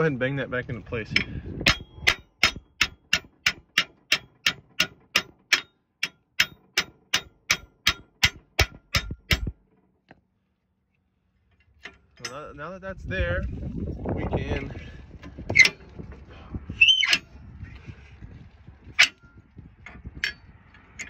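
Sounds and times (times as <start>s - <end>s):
hammer clanging on steel: 1.1s - 9.6s, 11.8s - 12.6s.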